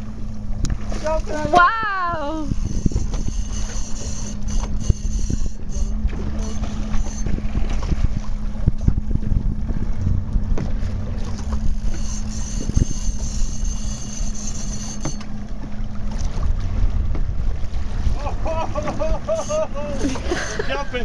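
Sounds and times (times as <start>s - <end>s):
boat engine running: 0.0s - 21.0s
wind buffeting microphone: 0.0s - 21.0s
thin high-pitched whine: 1.5s - 7.6s, 11.3s - 15.7s.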